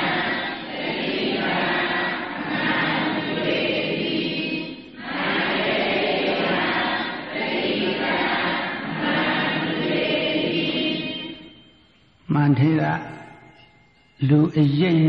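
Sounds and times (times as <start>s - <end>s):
group of voices chanting: 0.0s - 11.4s.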